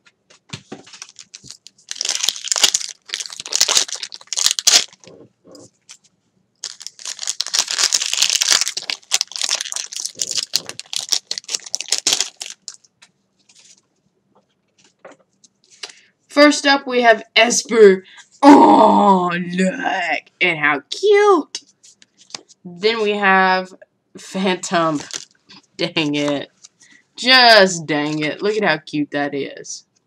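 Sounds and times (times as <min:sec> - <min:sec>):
packaging crinkling and tearing: 0:00.8 - 0:05.2, 0:06.6 - 0:12.9, 0:25.0 - 0:25.4.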